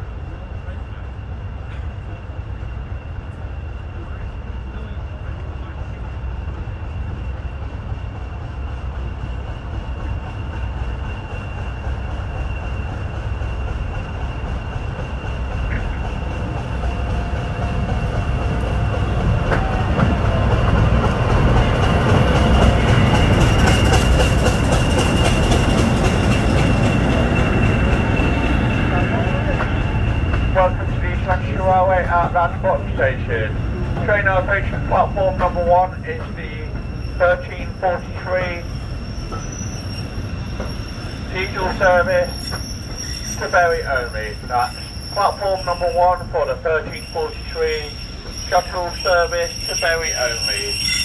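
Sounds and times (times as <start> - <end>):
locomotive engine rumble: 0.0 - 50.9
wheels clattering on rails: 7.3 - 32.9, 33.5 - 50.9
wheel squeal: 9.2 - 20.1, 21.6 - 30.6, 36.4 - 51.0.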